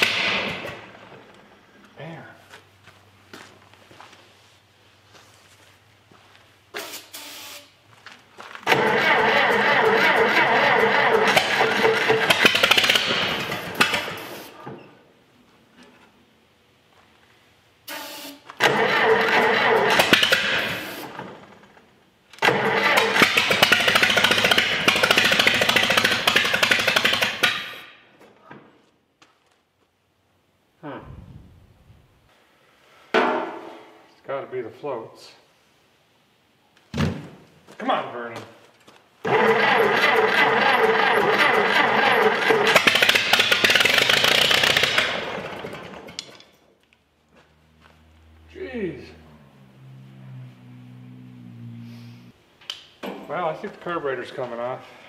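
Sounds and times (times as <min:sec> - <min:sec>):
tractor engine firing: 0:00.0 - 0:01.4, 0:08.6 - 0:14.5, 0:18.6 - 0:21.6, 0:22.4 - 0:28.0, 0:39.2 - 0:46.6.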